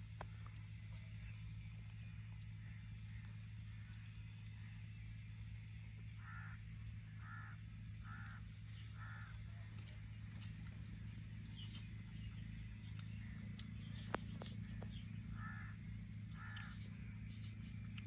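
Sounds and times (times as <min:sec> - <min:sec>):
steady low hum: 0:00.0 - 0:18.0
birds calling: 0:06.0 - 0:18.0.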